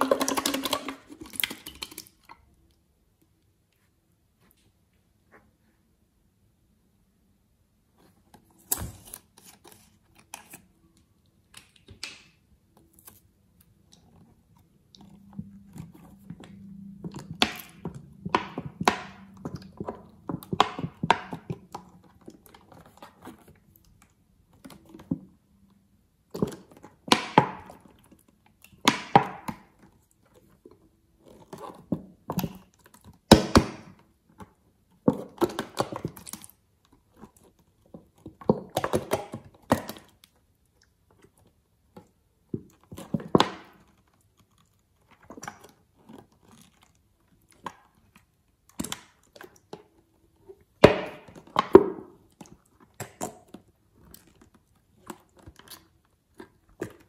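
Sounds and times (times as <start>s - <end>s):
slime squelching from bottle: 0.0s - 2.5s.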